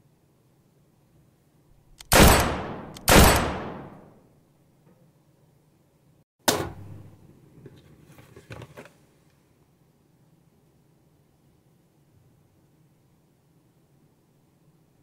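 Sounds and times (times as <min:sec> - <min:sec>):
gunshot bangs: 0:02.1 - 0:04.1.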